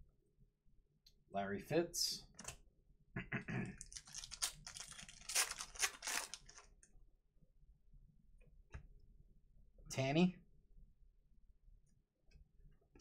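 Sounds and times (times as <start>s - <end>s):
foil wrapper crinkling and tearing: 3.8s - 6.7s.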